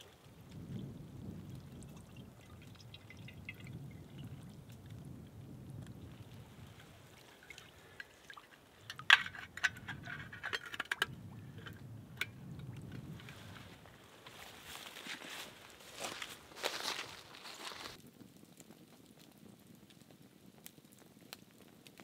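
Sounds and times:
water trickling and dripping: 0.0s - 16.8s
metal cup scooping water: 1.5s - 4.4s, 6.7s - 13.8s
water splashing: 6.0s - 11.8s.

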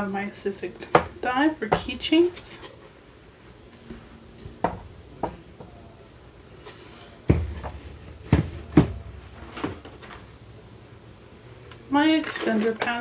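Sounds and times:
dull thud: 7.3s - 9.8s.

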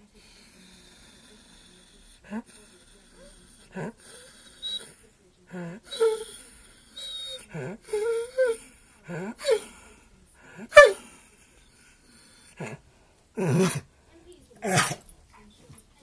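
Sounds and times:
dog vocal calls: 10.7s - 11.0s, 14.6s - 15.0s.

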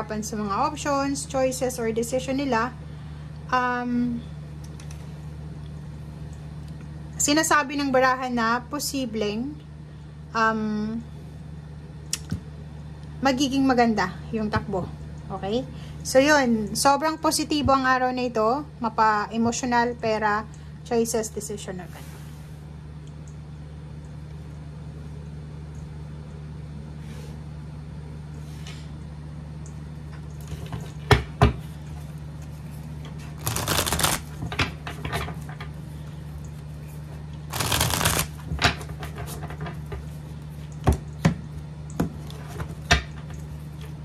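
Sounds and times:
steady low hum: 0.0s - 44.0s
cards riffle shuffled: 33.3s - 34.4s, 37.5s - 38.4s.

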